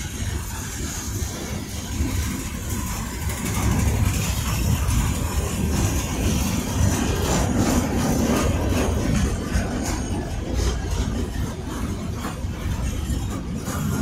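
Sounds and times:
train wheels rumbling on rail: 0.0 - 14.0
wheels clicking over rail joints: 0.0 - 14.0.

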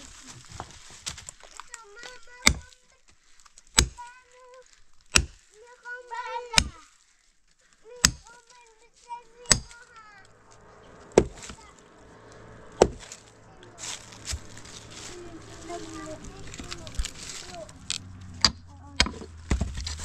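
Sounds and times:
axe chopping firewood: 2.4 - 2.8, 3.5 - 4.1, 5.0 - 5.5, 6.5 - 6.8, 8.0 - 8.4, 9.4 - 9.8, 11.0 - 11.6, 12.8 - 13.2, 16.4 - 20.0.

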